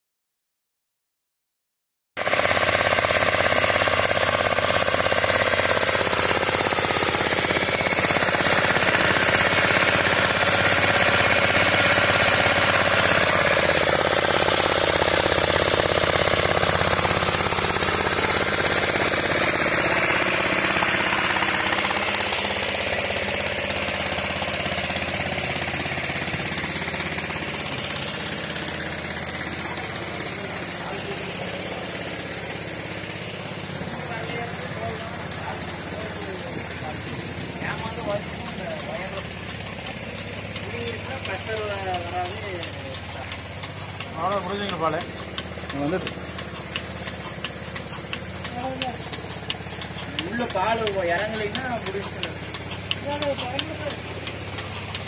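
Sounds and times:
petrol engine running loudly: 2.2s - 55.0s.

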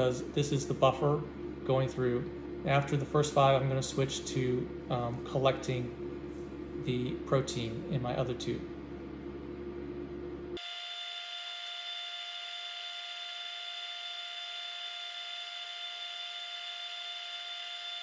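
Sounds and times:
electric whine of high tones: 10.5s - 18.0s.

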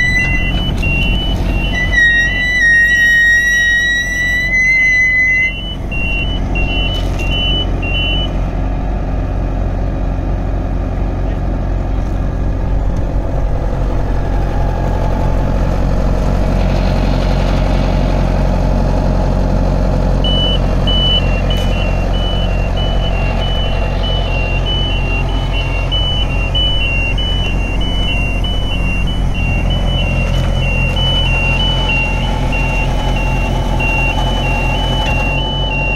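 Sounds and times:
two-note electronic beeping: 0.0s - 8.4s, 20.2s - 35.9s
diesel engine running: 0.0s - 35.9s.

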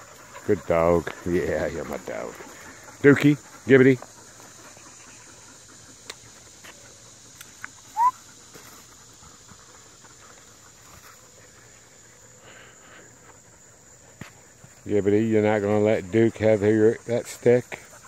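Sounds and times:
insects chirring: 0.0s - 18.0s
faint ticks: 6.0s - 7.8s.

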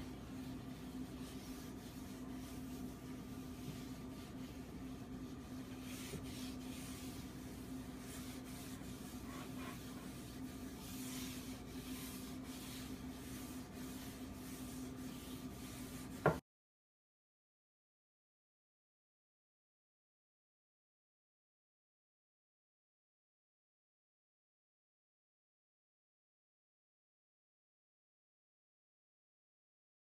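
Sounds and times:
cloth rubbing on wooden board: 0.0s - 16.4s
steady low hum: 0.0s - 16.4s.

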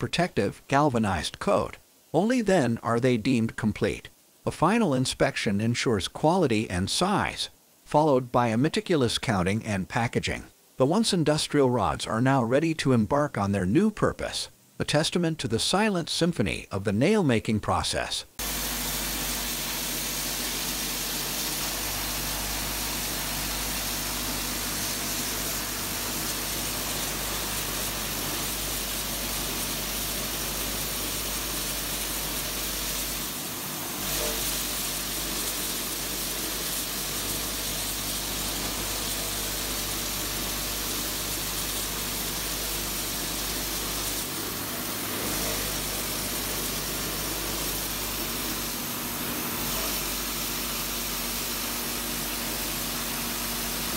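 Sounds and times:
nail-making machinery din: 18.4s - 53.9s.

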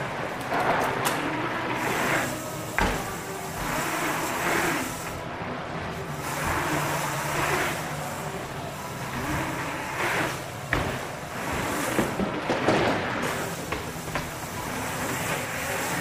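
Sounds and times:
bike tyres and drivetrain rumble: 0.0s - 16.0s.

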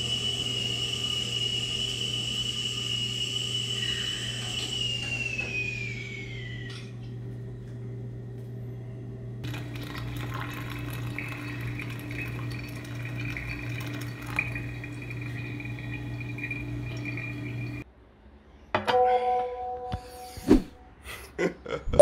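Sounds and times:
steady low hum: 0.0s - 17.8s
hot water pouring from kettle: 9.4s - 17.8s.

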